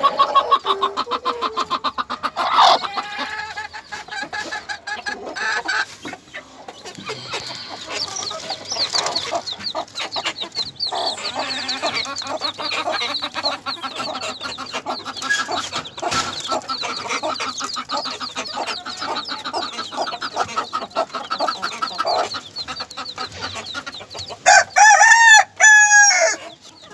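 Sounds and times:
chicks peeping: 0:00.0 - 0:26.9
hen clucking: 0:00.0 - 0:26.9
loud drawn-out chicken call: 0:24.5 - 0:26.4.

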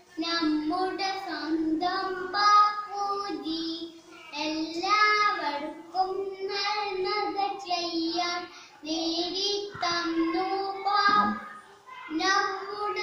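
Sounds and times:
boy singing solo: 0:00.1 - 0:13.0.

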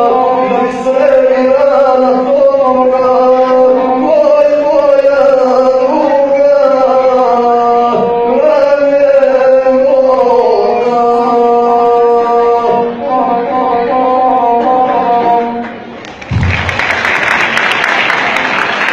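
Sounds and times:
man chanting singing: 0:00.0 - 0:15.6.

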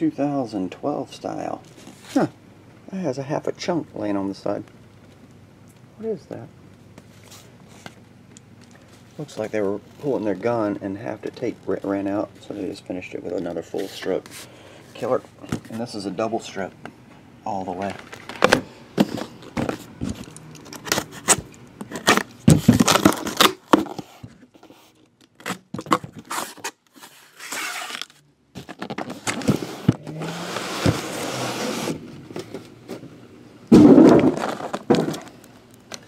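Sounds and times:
tape and cardboard crinkling: 0:17.7 - 0:33.0, 0:33.7 - 0:36.0
cardboard rustling: 0:25.9 - 0:33.0
long rasping scrape: 0:29.6 - 0:32.0.

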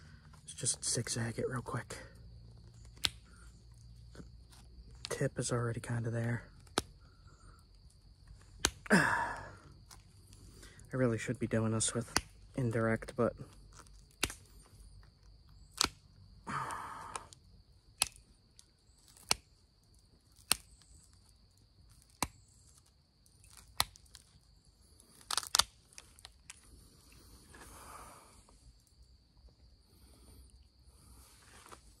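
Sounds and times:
stone striking flint clicks: 0:02.7 - 0:05.1, 0:06.6 - 0:07.5, 0:08.2 - 0:08.9, 0:12.0 - 0:12.5, 0:13.5 - 0:16.4, 0:17.1 - 0:27.7.

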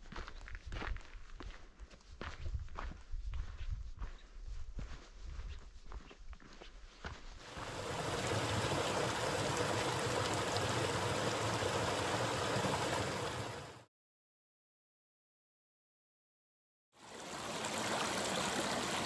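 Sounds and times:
footsteps on dirt trail: 0:00.0 - 0:07.8
rocky stream running: 0:07.5 - 0:13.8, 0:17.0 - 0:19.0.

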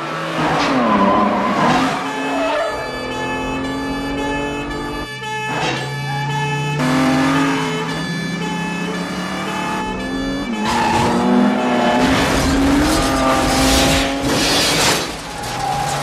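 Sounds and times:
car engines revving hard: 0:00.0 - 0:16.0
car crashing and rolling over: 0:11.9 - 0:16.0.

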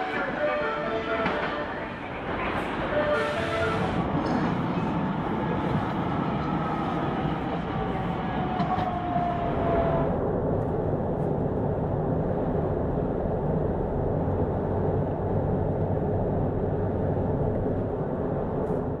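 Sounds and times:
vehicle cabin drone: 0:05.2 - 0:19.0.

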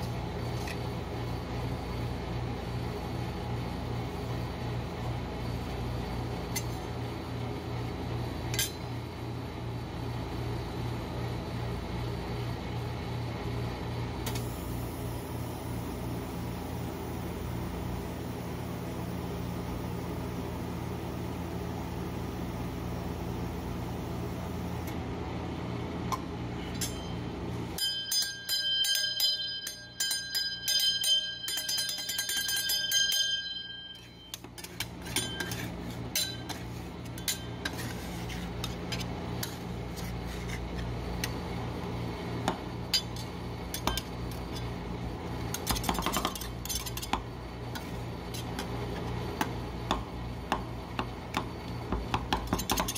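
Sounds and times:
metallic ringing and clinking: 0:26.6 - 0:27.2, 0:27.8 - 0:37.8
metal spatulas tapping: 0:27.8 - 0:37.8, 0:42.5 - 0:44.6, 0:45.5 - 0:47.2, 0:52.1 - 0:52.9.

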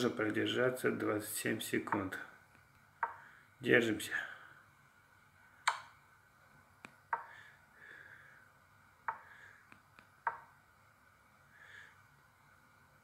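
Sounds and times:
wooden clicks of chess pieces: 0:03.0 - 0:03.2, 0:07.1 - 0:07.3, 0:09.1 - 0:10.5.

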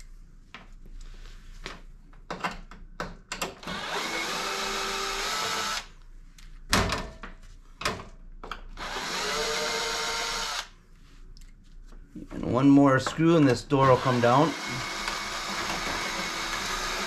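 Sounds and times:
cordless drill running: 0:03.6 - 0:05.9, 0:08.8 - 0:10.7, 0:13.8 - 0:17.0.

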